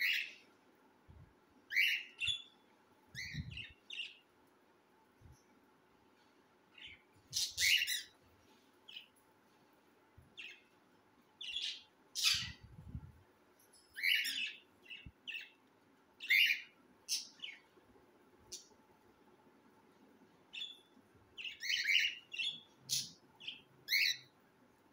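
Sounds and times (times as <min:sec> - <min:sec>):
cockatiels chirping and squawking: 0:01.7 - 0:02.5, 0:06.9 - 0:08.1, 0:11.5 - 0:12.6, 0:14.0 - 0:14.6, 0:16.2 - 0:17.6, 0:21.5 - 0:24.3.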